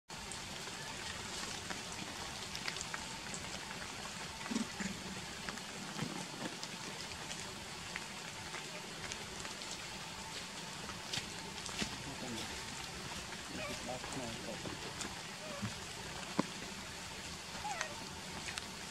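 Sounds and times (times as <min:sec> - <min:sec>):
steady hiss among trees: 0:00.1 - 0:18.9
small ticks and crackles: 0:00.2 - 0:18.9.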